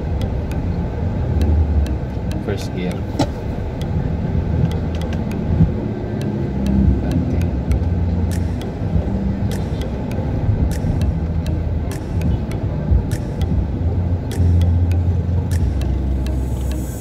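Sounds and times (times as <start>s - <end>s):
car engine and road rumble: 0.0s - 17.0s
light ticks: 4.6s - 16.8s.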